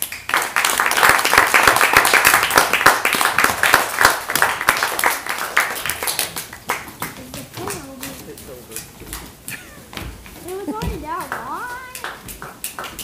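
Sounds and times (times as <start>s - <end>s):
small group applauding: 0.0s - 13.0s.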